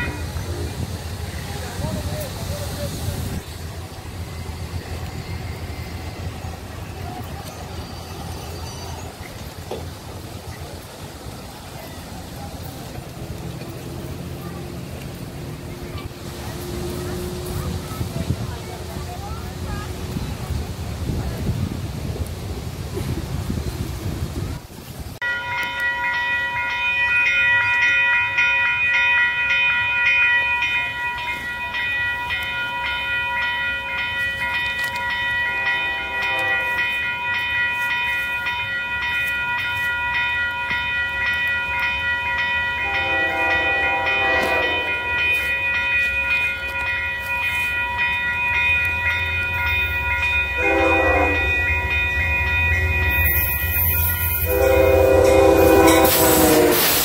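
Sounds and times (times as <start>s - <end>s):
train rumble: 0.0s - 57.0s
bell ringing steadily: 25.2s - 56.4s
train horn blasts: 35.5s - 37.0s, 42.8s - 45.3s, 50.6s - 51.9s, 52.8s - 57.0s.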